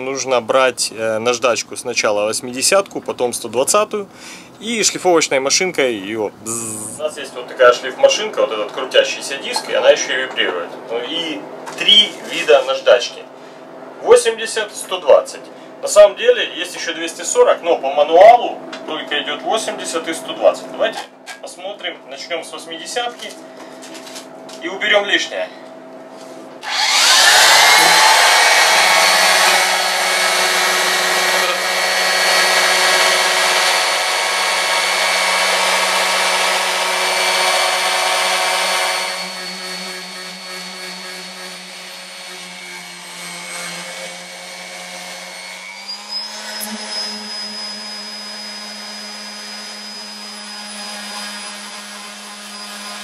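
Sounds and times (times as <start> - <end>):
orbital sander motor whine: 26.6 - 53.0.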